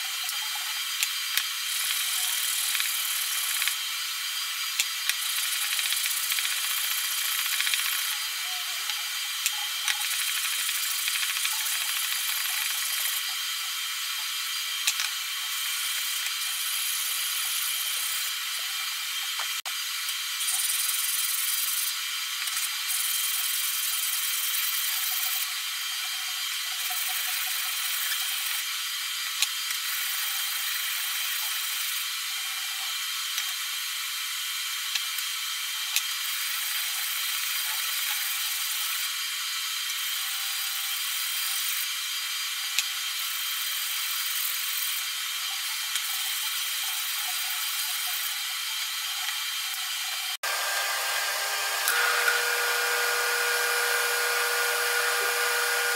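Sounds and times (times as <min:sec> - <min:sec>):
metal rubbed on sandpaper: 0:05.1 - 0:13.4.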